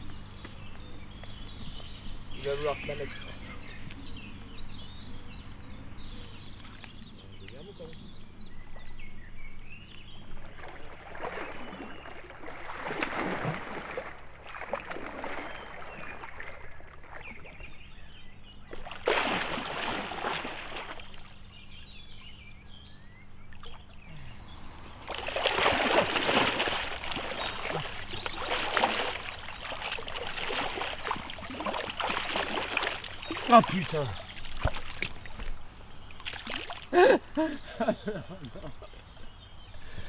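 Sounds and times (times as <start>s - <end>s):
small birds chirping: 0.0s - 10.6s, 14.9s - 40.0s
fish thrashing water: 10.4s - 17.6s, 18.7s - 21.4s, 24.8s - 35.6s, 36.2s - 37.0s.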